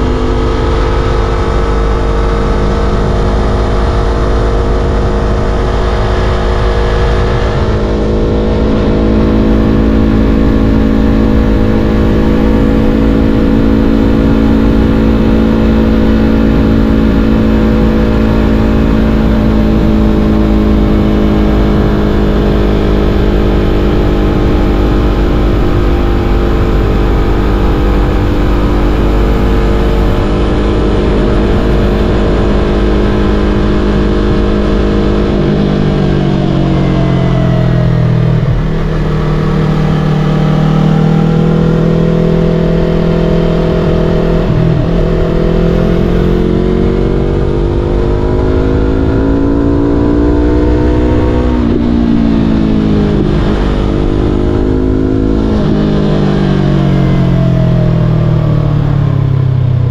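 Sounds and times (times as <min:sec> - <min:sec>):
motorcycle engine cruising: 0:00.0 - 0:59.9
wind rumble on microphone: 0:01.3 - 0:59.9.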